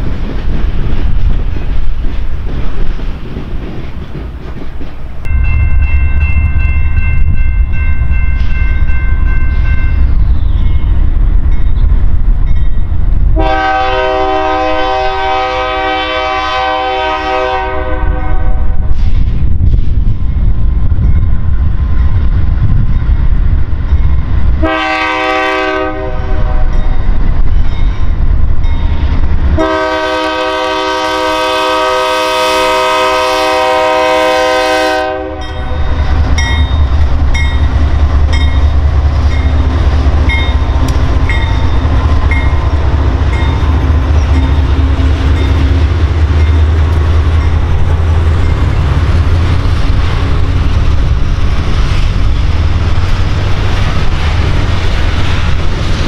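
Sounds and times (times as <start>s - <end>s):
crossing bell ringing: 5.2s - 12.9s, 26.6s - 29.0s, 35.3s - 49.5s
locomotive air horn blasts: 13.4s - 18.8s, 24.6s - 26.8s, 29.6s - 35.7s
locomotive engine rumble: 18.5s - 56.0s.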